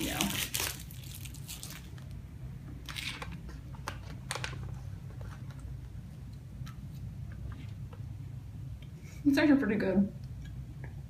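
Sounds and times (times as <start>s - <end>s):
foil pouch crinkling: 0.0s - 2.1s
low room hum: 0.0s - 11.0s.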